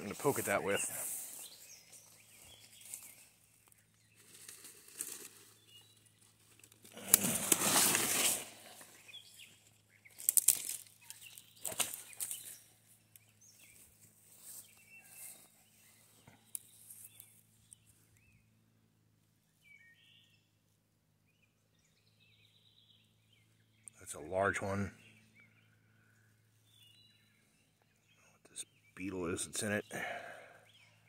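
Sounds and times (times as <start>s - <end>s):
rustling of brush and leaves: 0.0s - 18.1s
sticks cracking: 10.2s - 10.9s.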